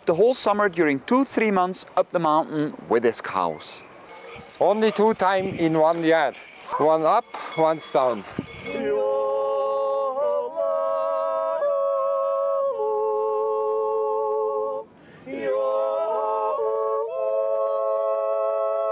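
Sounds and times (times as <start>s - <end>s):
group yodeling in harmony: 8.6s - 18.9s.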